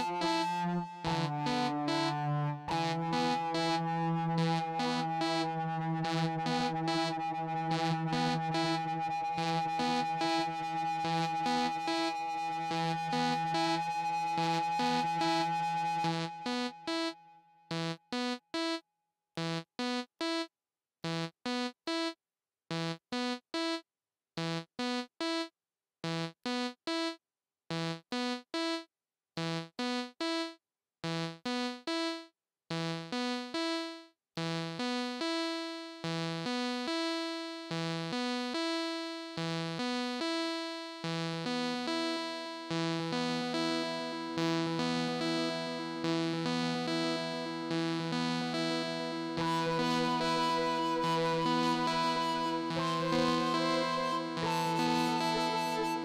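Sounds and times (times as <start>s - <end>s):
synthesizer note sequence: 0.0s - 16.3s, 49.4s - 56.0s.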